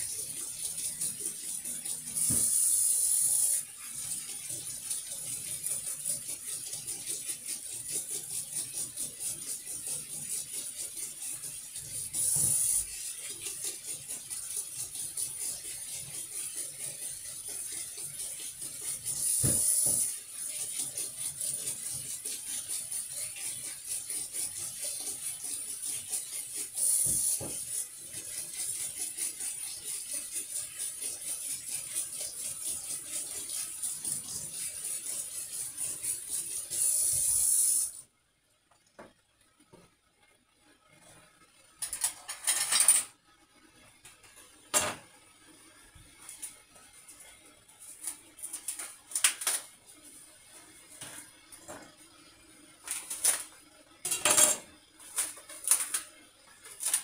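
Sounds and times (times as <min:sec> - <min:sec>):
dishes scrubbed in metal sink: 0:00.0 - 0:02.6, 0:03.6 - 0:37.6, 0:52.8 - 0:57.0
tap water running: 0:00.0 - 0:38.0, 0:45.6 - 0:57.0.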